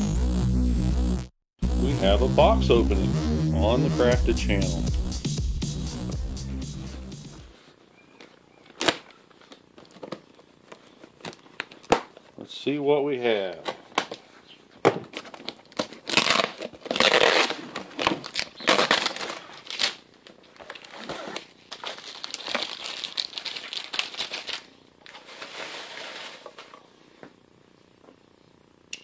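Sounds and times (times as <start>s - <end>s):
tape crinkling: 8.2s - 12.4s, 15.0s - 26.8s
packing tape ripping: 8.7s - 10.3s, 15.1s - 26.6s.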